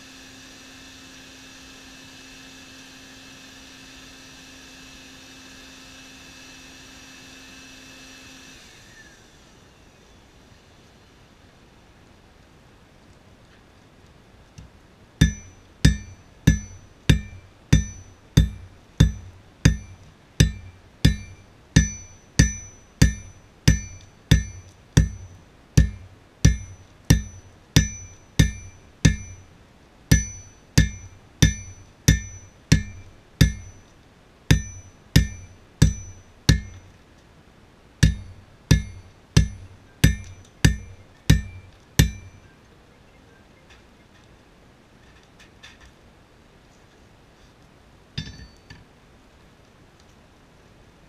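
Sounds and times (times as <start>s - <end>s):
anvil ringing: 15.2s - 29.5s, 30.1s - 33.9s, 34.5s - 36.9s, 38.0s - 42.4s, 48.2s - 48.7s
hammer striking steel on anvil: 15.2s - 29.5s, 30.1s - 33.9s, 34.5s - 36.9s, 38.0s - 42.4s, 48.2s - 48.7s.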